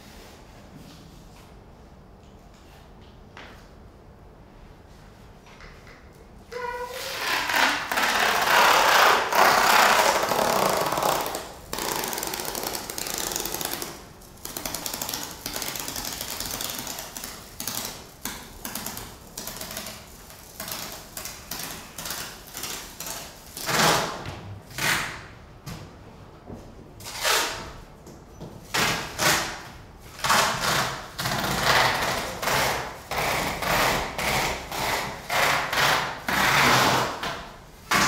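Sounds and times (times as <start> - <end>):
rapid clicks and rattles: 11.0 - 23.4.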